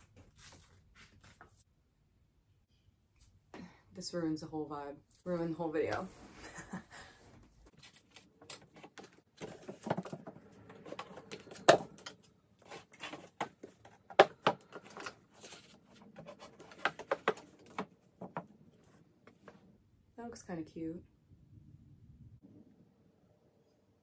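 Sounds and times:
books knocking on shelves: 9.4 - 12.0, 13.2 - 15.0, 16.6 - 18.5.

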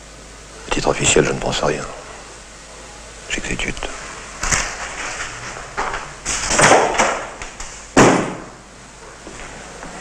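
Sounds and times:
people moving: 3.8 - 8.0, 9.0 - 10.0
door slamming: 5.9 - 7.4, 8.0 - 8.6.

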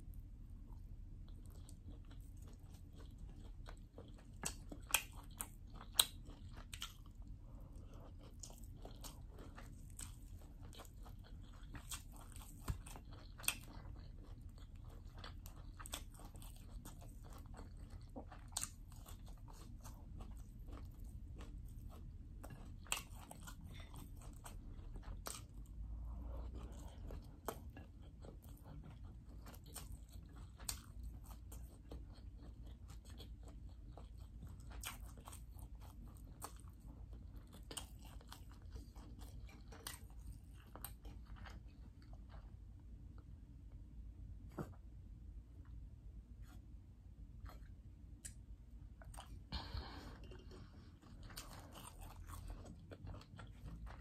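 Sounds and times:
person chewing and crunching food: 0.0 - 54.0.

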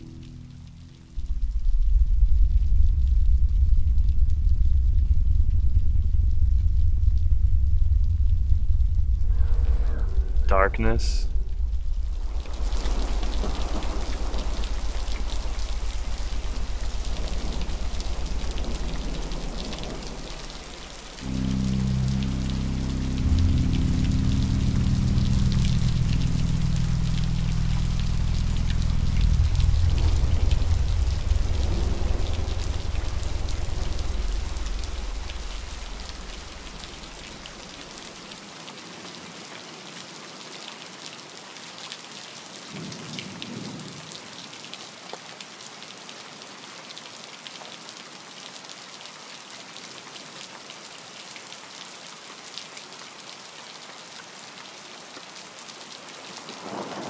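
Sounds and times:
deep rumble: 0.0 - 38.1
steady rain falling: 0.0 - 57.0.

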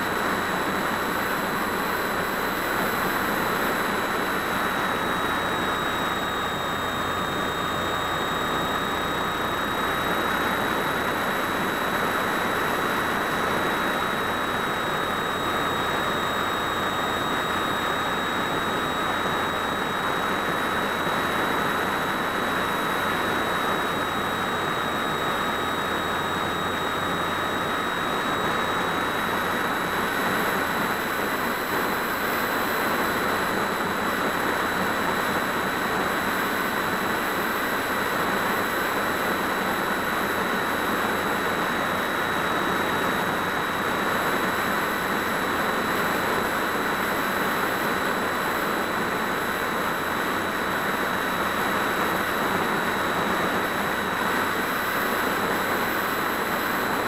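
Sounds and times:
thin high whine: 0.0 - 57.0.

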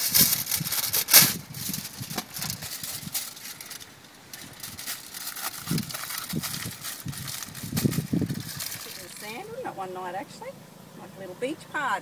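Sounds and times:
kitchen foil crinkling: 0.0 - 9.6.

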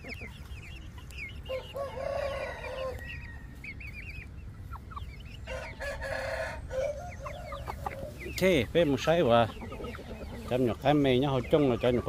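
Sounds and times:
chickens chirping: 0.0 - 12.0
rooster crowing: 1.5 - 3.5, 5.4 - 7.6.

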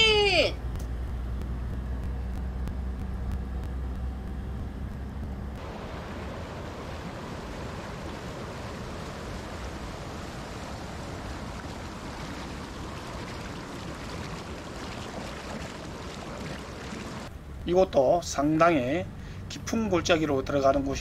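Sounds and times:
stream rushing over rocks: 5.6 - 17.3.

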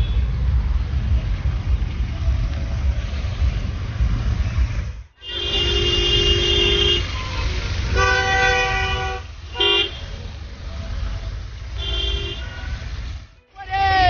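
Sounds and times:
car horns honking: 0.0 - 0.4, 5.2 - 10.2, 11.7 - 13.7
rumble of engines and tyres: 0.0 - 14.0.

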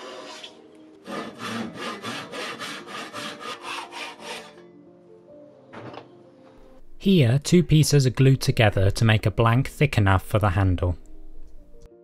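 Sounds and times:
hand saw cutting wood: 0.0 - 4.6
soft background music: 0.0 - 12.0.

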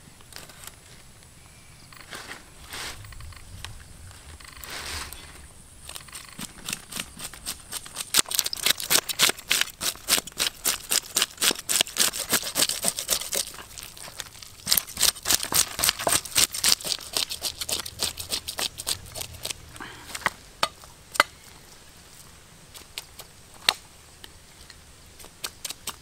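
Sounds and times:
knife scraping fish scales: 6.2 - 19.6.

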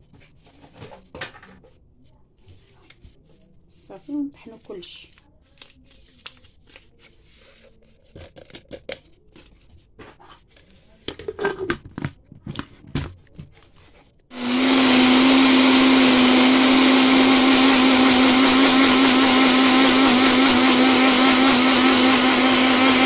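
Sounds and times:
blender motor running: 14.3 - 23.0.

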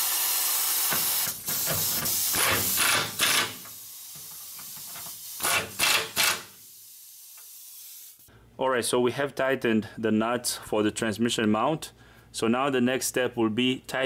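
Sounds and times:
air hiss: 0.0 - 8.3
impact wrench hammering: 0.9 - 6.6.

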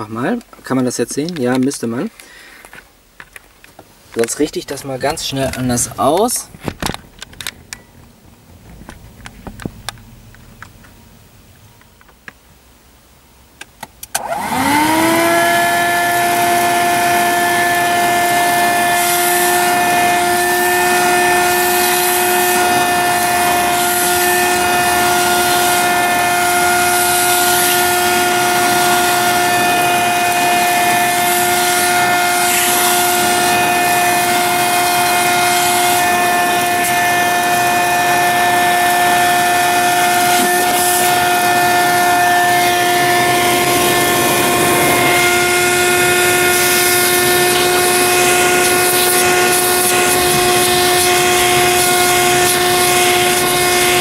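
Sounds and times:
handheld vacuum motor whining: 14.0 - 54.0.

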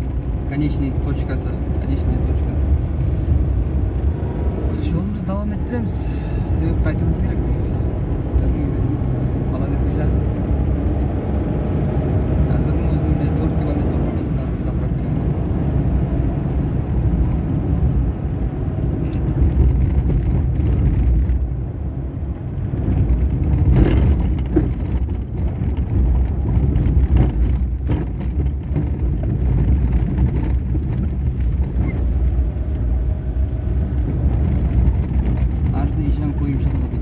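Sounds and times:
low rumble of tyres and engine: 0.0 - 37.0
knocks and rattles from bumps: 22.4 - 32.4.

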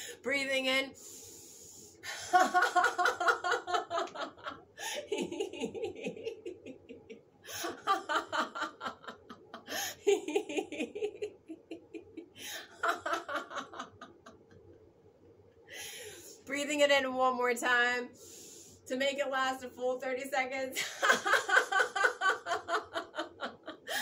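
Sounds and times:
sharp breath in: 1.0 - 2.0
woman laughing: 2.0 - 14.6, 20.8 - 24.0.

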